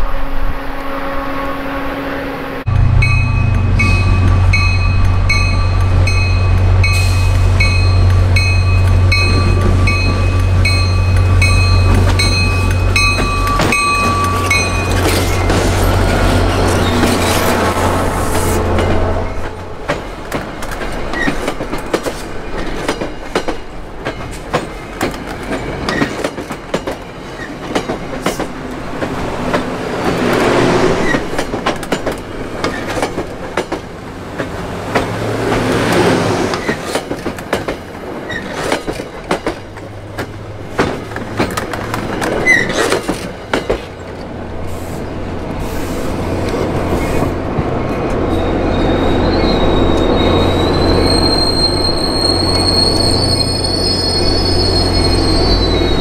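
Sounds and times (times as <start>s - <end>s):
train wheels clacking over joints: 18.8s - 44.2s
high wheel squeal: 48.3s - 56.0s.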